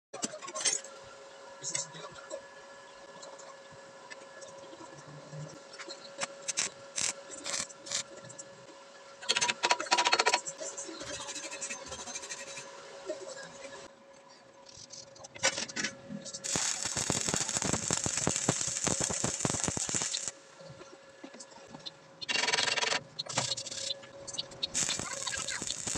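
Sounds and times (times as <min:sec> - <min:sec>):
welding arc crackle: 0:06.2 - 0:08.1, 0:15.4 - 0:20.6, 0:24.6 - 0:25.9.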